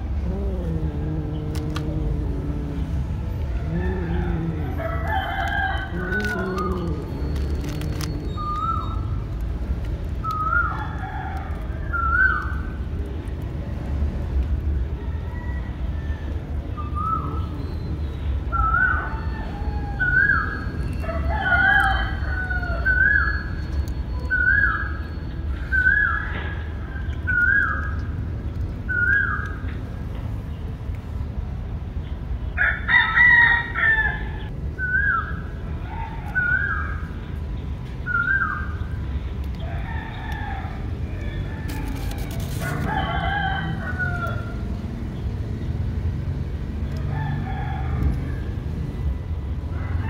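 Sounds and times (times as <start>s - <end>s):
rooster crowing: 3.5s - 6.8s, 15.0s - 16.5s, 19.0s - 23.1s, 32.6s - 34.4s, 39.7s - 44.6s.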